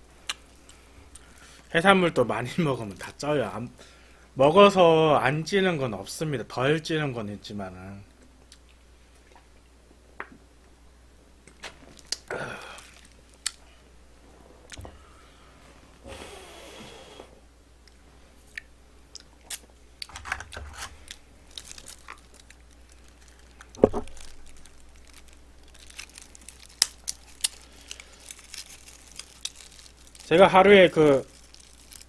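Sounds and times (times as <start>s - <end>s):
person chewing: 12.0s - 13.7s, 18.5s - 20.1s, 20.8s - 30.3s.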